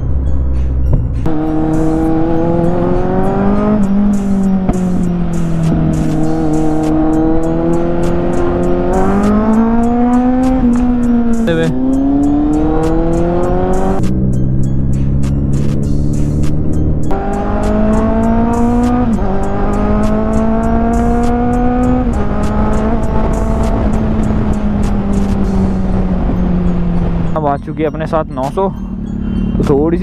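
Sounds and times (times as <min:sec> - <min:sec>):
motorcycle engine revving: 0:01.2 - 0:27.4.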